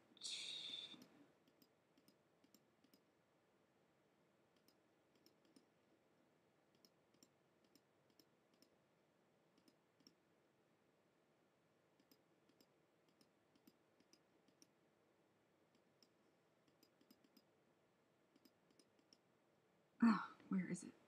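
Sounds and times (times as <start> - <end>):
computer mouse clicks: 0.9 - 3.1, 4.5 - 5.7, 6.7 - 8.8, 9.5 - 10.2, 12.0 - 14.8, 15.7 - 17.5, 18.3 - 19.3.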